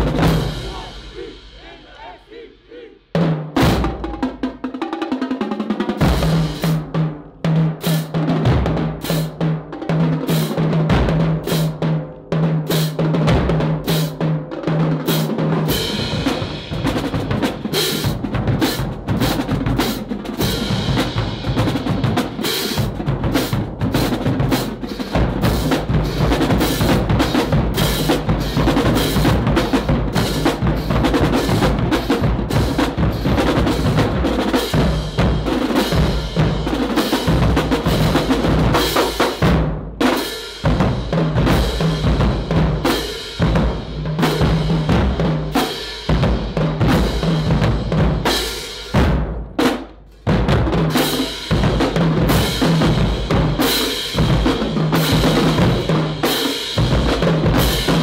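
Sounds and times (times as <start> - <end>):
snare drum rolls: 0.0 - 2.2, 3.2 - 11.8, 15.0 - 58.0
bass drum notes: 0.0 - 4.5, 20.4 - 53.6
marching drumline: 0.0 - 58.0.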